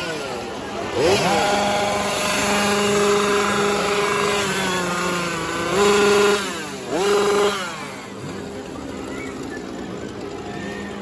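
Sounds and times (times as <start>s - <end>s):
chainsaw engine revving: 0.0s - 11.0s.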